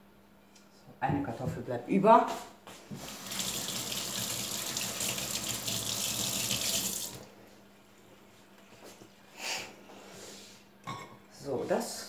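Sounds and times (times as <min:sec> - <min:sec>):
tap running water into sink: 0:02.9 - 0:07.3.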